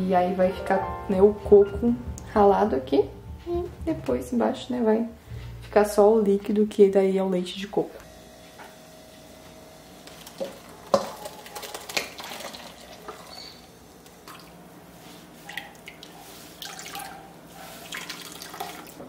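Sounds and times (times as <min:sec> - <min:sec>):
liquid splashing and dripping: 0:10.3 - 0:13.3.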